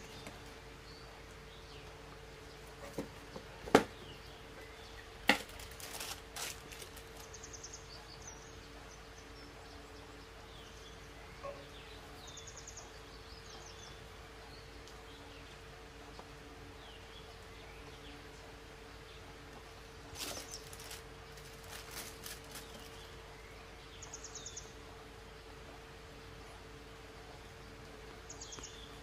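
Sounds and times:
sharp knocks on cardboard box: 2.9 - 4.0
paper rustling: 5.3 - 7.3, 20.2 - 23.1.

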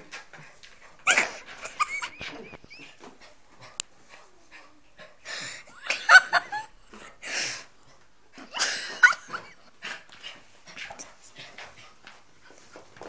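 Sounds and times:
bursts of laughter: 5.7 - 7.0, 8.4 - 9.7.

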